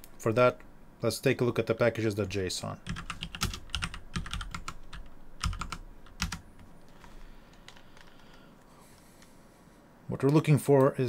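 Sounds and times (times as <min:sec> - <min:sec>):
typing on computer keyboard: 0:02.8 - 0:08.4.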